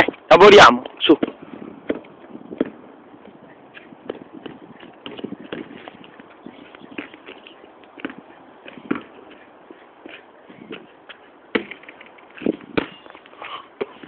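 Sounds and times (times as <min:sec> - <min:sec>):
basketball bouncing on court: 0:08.8 - 0:09.1.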